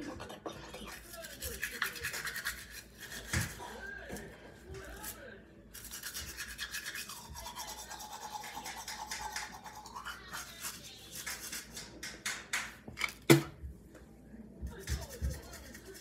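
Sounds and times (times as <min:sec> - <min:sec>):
toothbrush scrubbing teeth: 0:00.0 - 0:03.8, 0:04.8 - 0:12.2, 0:14.7 - 0:16.0.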